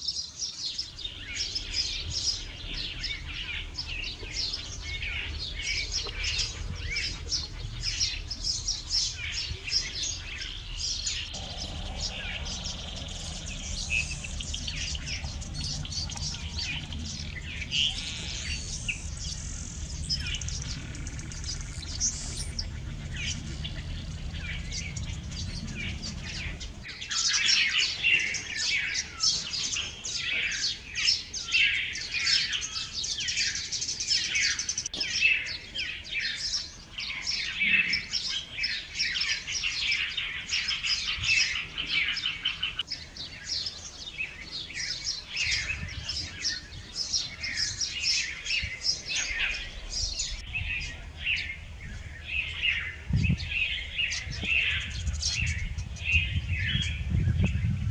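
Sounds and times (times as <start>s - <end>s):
small birds chirping: 0.0s - 57.9s
low background rumble: 0.8s - 28.6s.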